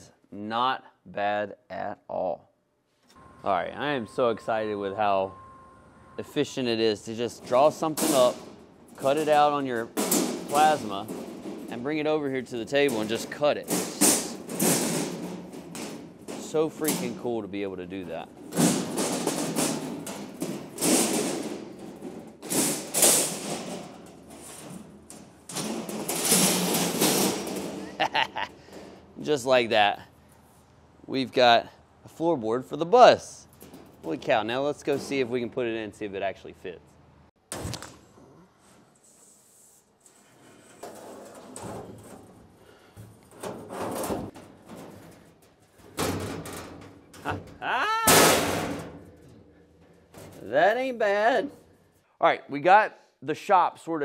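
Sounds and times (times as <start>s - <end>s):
short rising squeal: 3.2s - 6.7s
steel sheets scraping and clanking: 6.2s - 29.0s, 40.0s - 51.8s
loud metal clang: 48.0s - 49.3s.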